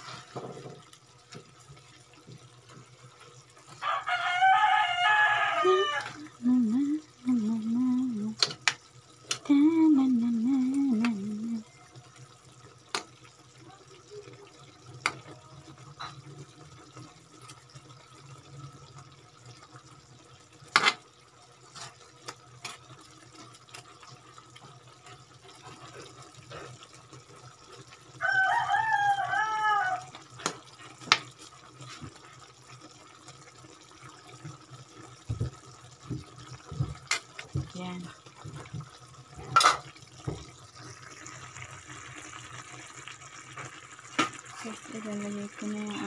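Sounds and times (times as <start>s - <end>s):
rooster crowing: 3.8s - 6.2s, 28.2s - 30.2s.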